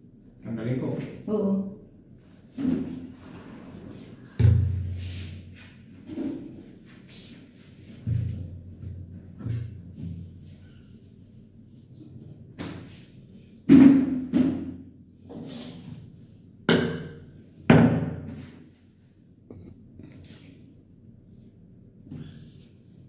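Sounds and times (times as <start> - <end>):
cloth wiping counter: 4.8 - 8.3.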